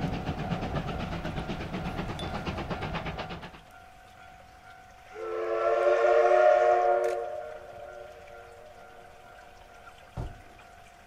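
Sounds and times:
steam train running: 0.0 - 11.0
steam locomotive whistle: 5.1 - 8.7.

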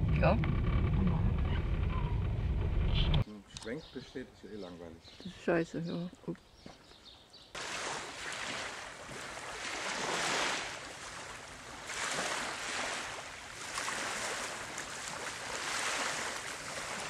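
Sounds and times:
small waves washing ashore: 7.6 - 17.0.

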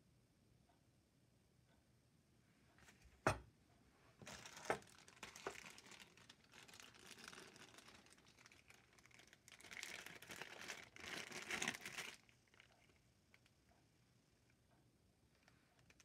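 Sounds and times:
plastic bag crinkling: 4.2 - 13.5.

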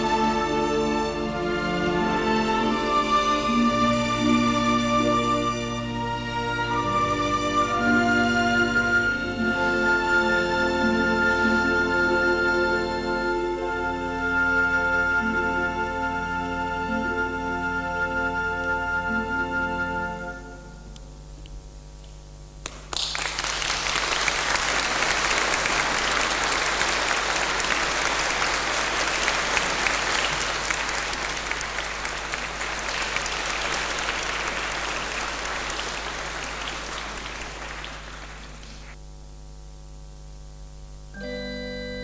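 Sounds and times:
audience applauding: 22.6 - 39.0.

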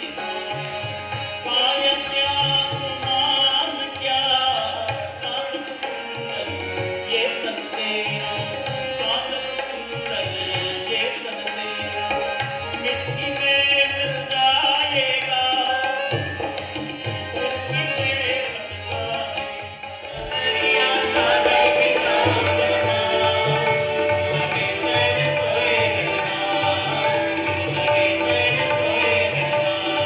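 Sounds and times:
harmonium: 0.0 - 30.0
tabla rhythm: 0.0 - 30.0.

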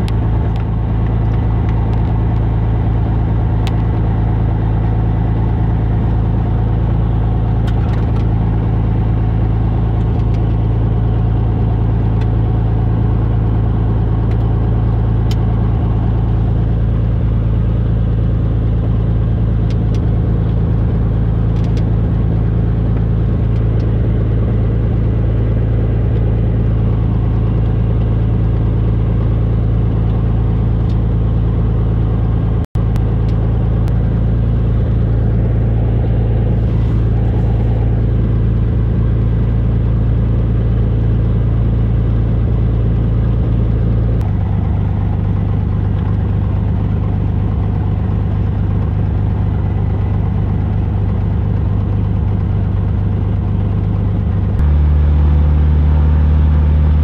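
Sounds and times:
propeller airplane engine drone: 0.0 - 57.0.

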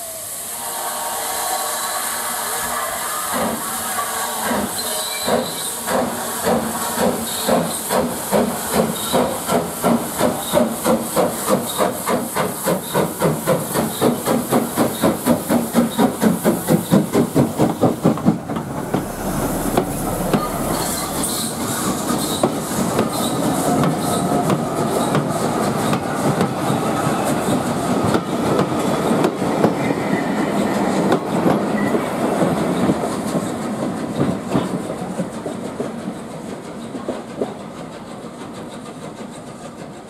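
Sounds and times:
steam locomotive chuffing: 0.0 - 40.0
coaches rumbling by: 17.7 - 22.2.

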